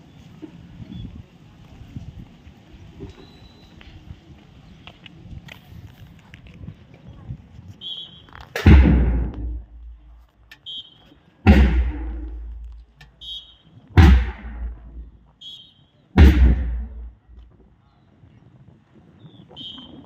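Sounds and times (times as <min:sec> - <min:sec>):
deep booming hits: 0:08.6 - 0:10.1, 0:11.4 - 0:12.8, 0:14.0 - 0:15.2, 0:16.2 - 0:17.4.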